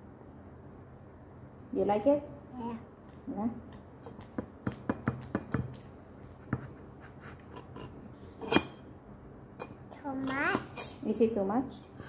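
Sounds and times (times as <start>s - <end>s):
fork tapping on plate: 4.0s - 5.9s.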